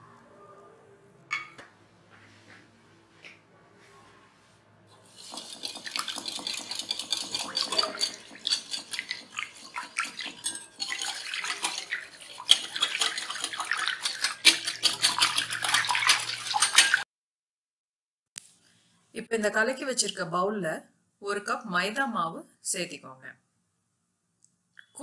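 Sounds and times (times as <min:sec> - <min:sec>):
liquid sloshing: 0:05.0 - 0:17.0
whisk clicking against glass bowl: 0:05.2 - 0:17.0.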